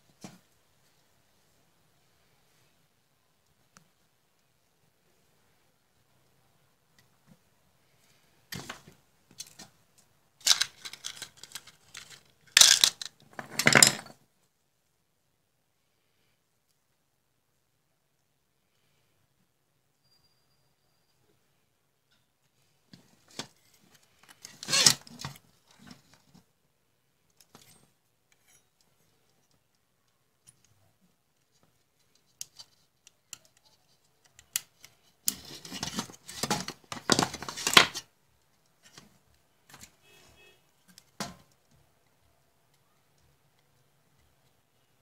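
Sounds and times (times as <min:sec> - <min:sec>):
handling metal case and wires: 0:10.4 - 0:14.2, 0:22.9 - 0:26.5, 0:31.4 - 0:38.1
rustling and scraping: 0:10.4 - 0:14.2, 0:31.4 - 0:38.1.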